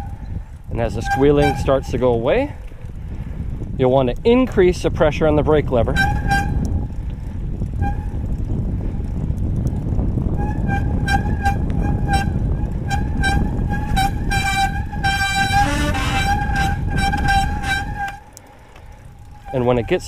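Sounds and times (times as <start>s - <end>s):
bike disc brake squealing: 0.0s - 2.3s, 5.7s - 8.5s, 10.3s - 20.0s
wind: 0.0s - 20.0s
tyre rumble: 5.2s - 20.0s.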